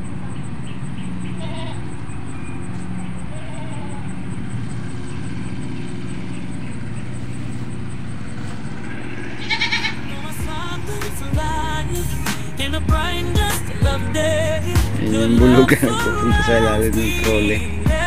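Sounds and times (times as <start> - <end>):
low motor hum: 0.0 - 18.0
farm animal bleats: 1.1 - 2.0, 3.0 - 4.4, 8.8 - 10.3.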